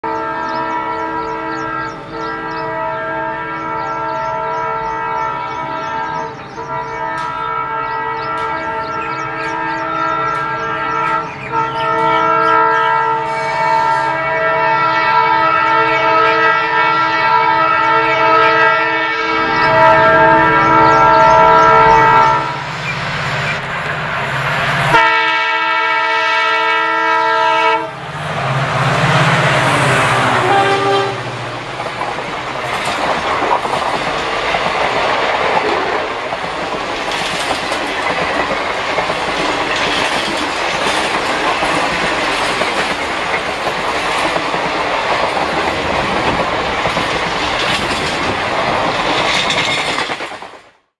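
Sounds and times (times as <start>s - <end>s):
train air horn blasts: 0.0s - 22.7s, 24.8s - 28.1s, 28.8s - 31.6s
diesel locomotive engine: 0.0s - 50.9s
train wheels clickety-clack: 3.7s - 12.5s, 28.9s - 50.8s.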